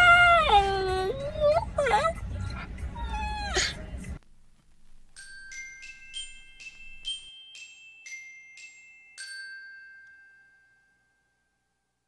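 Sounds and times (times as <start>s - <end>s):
bell-like mallet jingle: 5.2s - 11.9s.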